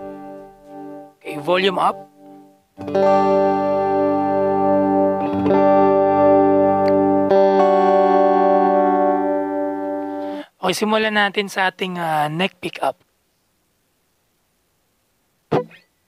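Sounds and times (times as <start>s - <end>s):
electric guitar chords ringing: 0.0s - 10.5s.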